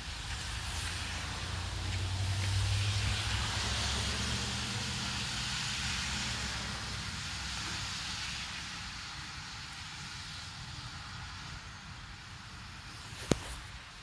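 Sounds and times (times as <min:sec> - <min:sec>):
passing vehicle engine hum: 0:00.0 - 0:11.8
light rain falling: 0:00.0 - 0:14.0
tyre noise on wet road: 0:00.0 - 0:14.0.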